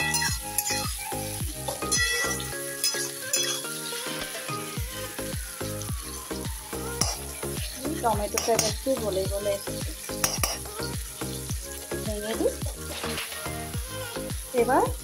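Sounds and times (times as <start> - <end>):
background music with beat: 0.0 - 15.0
vegetables sizzling in oil: 0.0 - 15.0.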